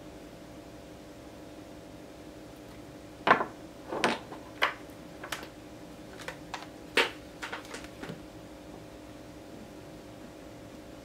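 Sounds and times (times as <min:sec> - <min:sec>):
faint steady hum: 0:00.0 - 0:11.0
cells set down on wooden bench: 0:03.3 - 0:05.4.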